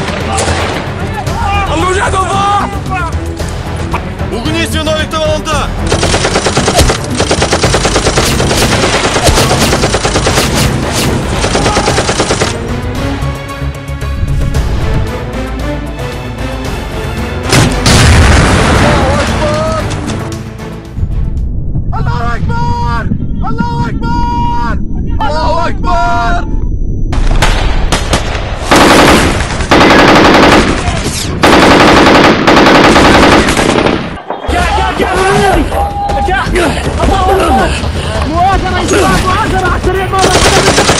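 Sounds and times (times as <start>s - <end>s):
machine-gun fire: 5.9s - 12.6s, 27.4s - 34.2s, 40.2s - 40.9s.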